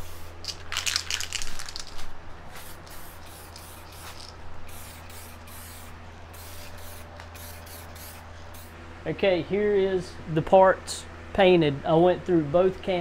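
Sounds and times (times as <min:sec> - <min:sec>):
steady low hum: 0:00.0 - 0:13.0
aerosol can spraying: 0:02.5 - 0:08.8.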